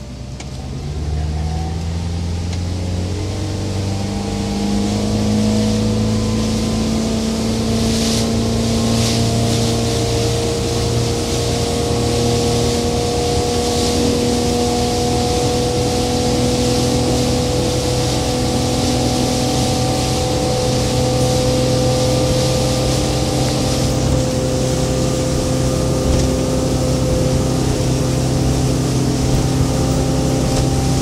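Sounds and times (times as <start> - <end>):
boat engine running: 0.0 - 31.0
water splashing against hull: 0.0 - 31.0.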